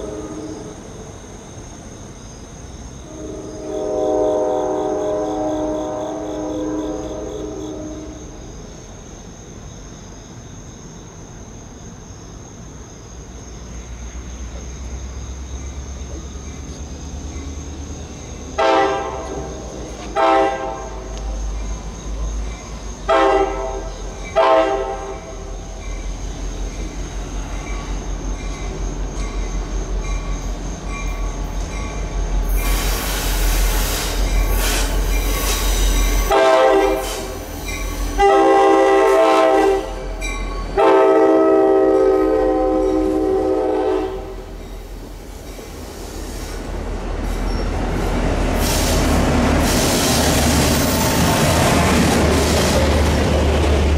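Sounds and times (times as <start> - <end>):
locomotive horn blasts: 0.0 - 0.7, 3.0 - 8.2, 18.6 - 21.1, 23.1 - 25.5, 36.2 - 37.4, 38.1 - 40.1, 40.8 - 44.5
crickets chirping: 0.0 - 53.9
diesel and wheels rumbling: 0.0 - 53.9.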